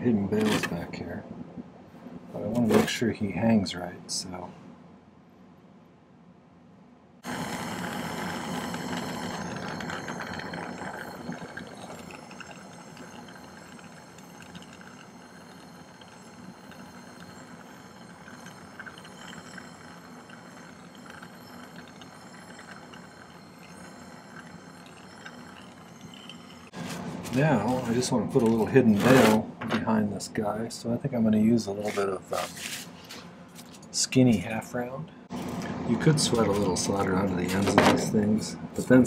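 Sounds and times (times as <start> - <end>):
soldering torch hissing: 7.2 - 26.7.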